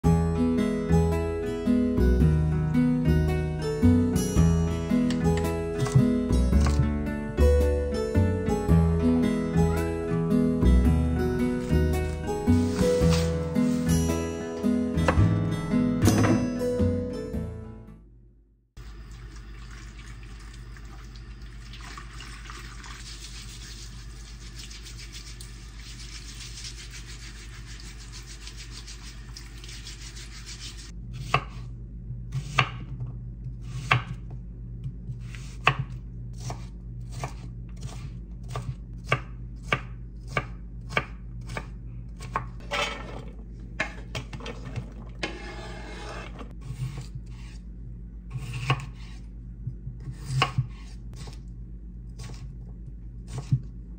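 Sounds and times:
tap water running: 0:18.8 - 0:30.9
steady low hum: 0:22.9 - 0:53.9
knife chopping on wooden board: 0:32.4 - 0:32.9, 0:33.7 - 0:34.2, 0:35.1 - 0:42.5, 0:48.3 - 0:49.2, 0:50.0 - 0:51.4.

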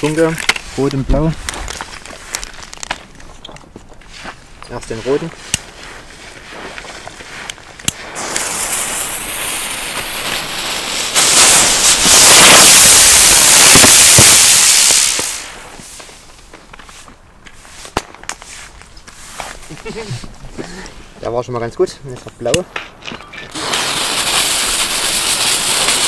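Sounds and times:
firework burning with rushing hiss: 0:04.0 - 0:20.4, 0:23.4 - 0:26.0.

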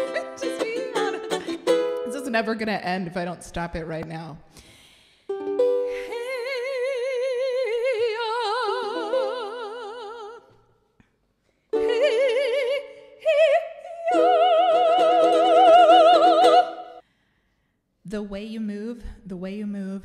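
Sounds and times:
woman singing operatic notes: 0:00.0 - 0:02.6, 0:05.9 - 0:10.6, 0:11.8 - 0:17.0
ukulele chords: 0:00.0 - 0:02.7, 0:05.3 - 0:10.2, 0:11.7 - 0:12.8, 0:13.9 - 0:17.0.

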